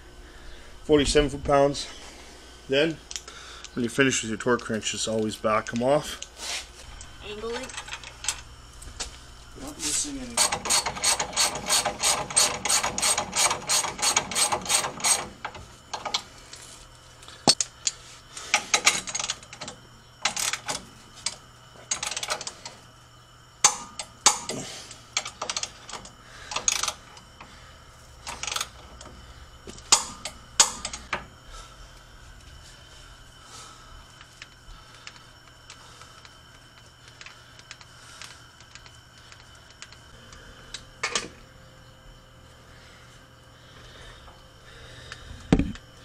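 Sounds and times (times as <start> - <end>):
ratchet wrench clicking: 10.4 - 15.4.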